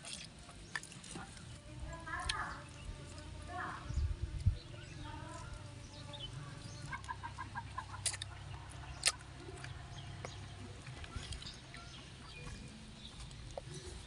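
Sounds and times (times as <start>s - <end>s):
hen clucking: 5.0s - 12.2s.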